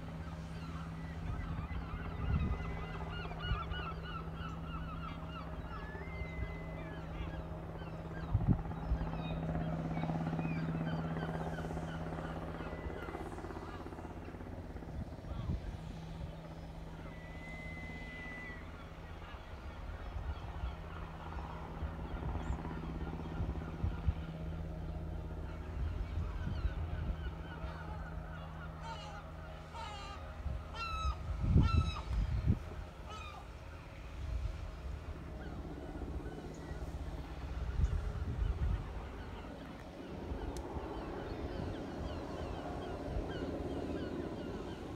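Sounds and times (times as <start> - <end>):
helicopter rotor chop and drone: 0.0 - 44.9
wind rumble on microphone: 1.2 - 3.8, 8.2 - 9.1, 14.7 - 16.3, 25.4 - 27.5, 30.4 - 33.3, 34.1 - 44.7
bird honking calls: 26.4 - 33.9.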